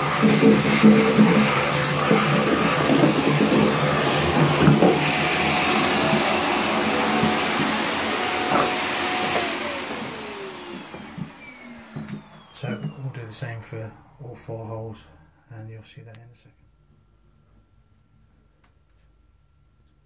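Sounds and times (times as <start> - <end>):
vacuum cleaner motor whine: 0.0 - 14.4.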